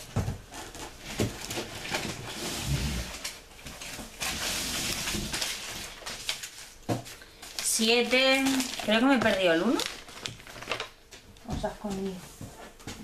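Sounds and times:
rustling and crinkling packaging: 0:00.0 - 0:13.0.

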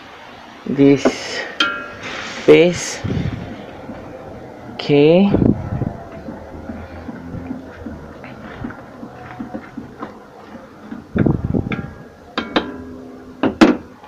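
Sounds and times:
wooden spatula scraping a wok: 0:01.8 - 0:04.1
spatula knocking on metal wok: 0:06.1 - 0:13.8.

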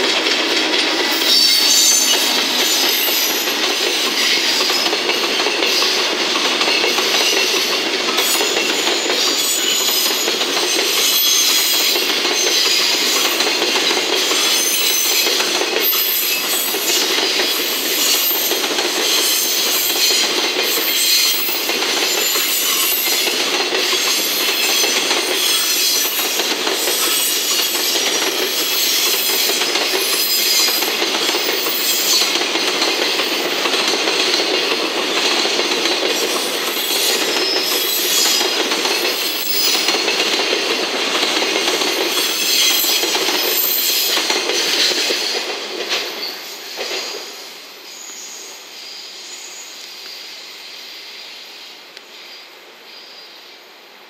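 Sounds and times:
wheels clacking over rail joints: 0:00.0 - 0:47.3
freight train wheels rumbling: 0:00.0 - 0:50.4.

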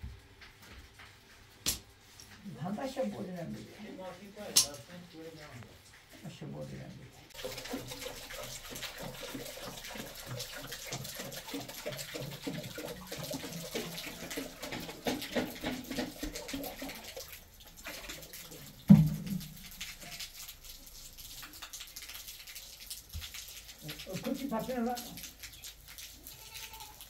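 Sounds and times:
water splashing: 0:07.3 - 0:27.0.

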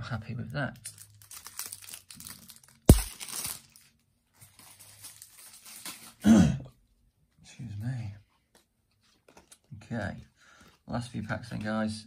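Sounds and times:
plastic wrapper crinkling and tearing: 0:00.6 - 0:06.2
sharp thump: 0:02.9 - 0:03.1.

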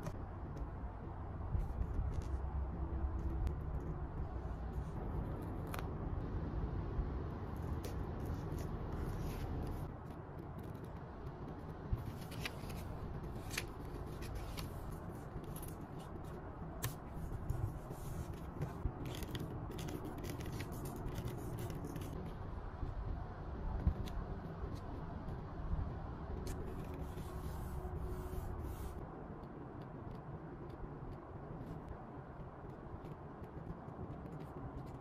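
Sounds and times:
low steady hum: 0:00.0 - 0:35.0
paper rustling and scraping: 0:07.6 - 0:09.9, 0:11.9 - 0:22.4, 0:26.4 - 0:29.0.

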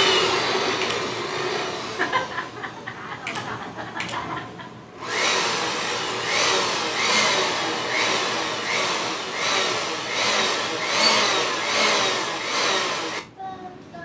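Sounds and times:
electric blower rushing air: 0:00.0 - 0:02.4, 0:05.0 - 0:13.3.

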